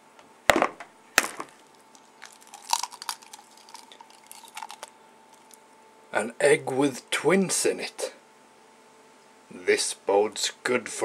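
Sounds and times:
eggshell crackling: 1.2s - 5.6s.

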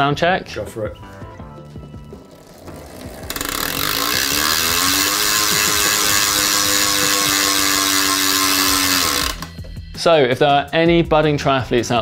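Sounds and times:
bicycle freehub buzzing: 1.8s - 9.6s.

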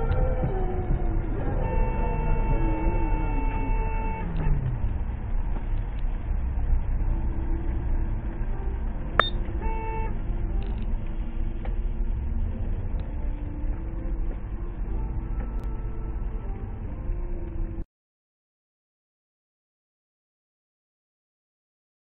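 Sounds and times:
car engine and road rumble: 0.0s - 17.8s
car horn honk: 1.5s - 4.7s, 9.2s - 10.2s.

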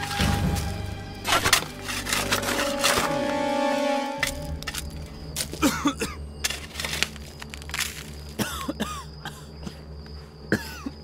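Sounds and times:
dirt and gravel crunching spatters: 0.2s - 3.4s, 4.2s - 8.8s
man coughing and gasping: 5.6s - 6.3s, 8.4s - 9.9s, 10.5s - 11.0s.

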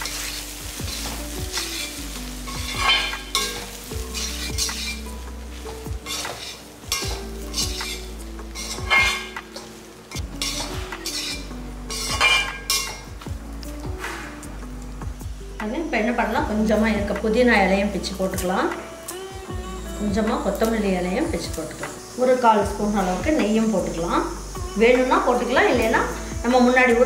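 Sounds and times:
spoon scraping a pan: 0.0s - 13.1s
light sizzle: 0.0s - 27.0s
soft background music: 0.0s - 27.0s.

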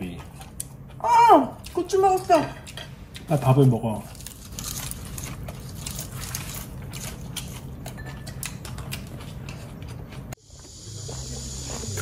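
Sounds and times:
person chewing crunchy food: 2.6s - 12.0s.

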